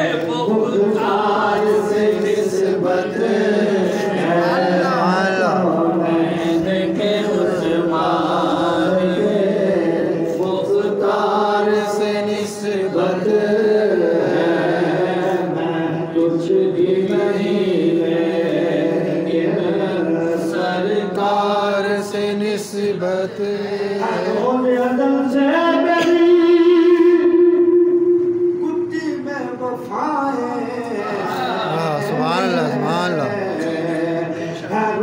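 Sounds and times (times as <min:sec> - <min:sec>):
man chanting into a microphone: 0:00.0 - 0:18.4, 0:28.8 - 0:35.0.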